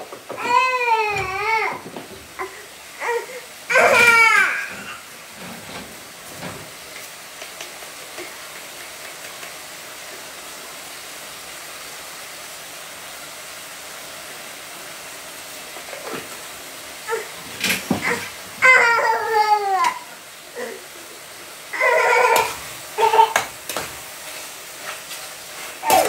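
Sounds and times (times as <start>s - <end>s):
steady hiss: 0.0s - 26.0s
loud wailing cry: 21.7s - 23.4s.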